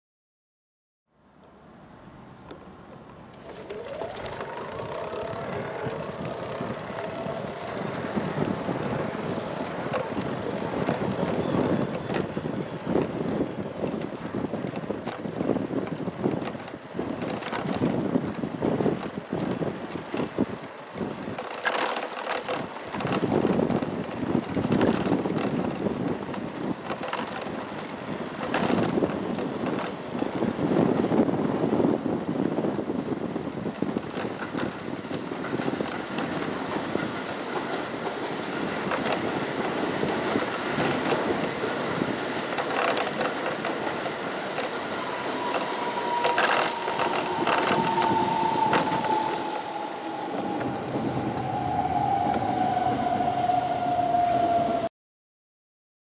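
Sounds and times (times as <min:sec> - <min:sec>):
electric train rumbling: 0:02.4 - 0:54.9
motor whine falling in pitch: 0:03.4 - 0:12.1, 0:44.4 - 0:53.7.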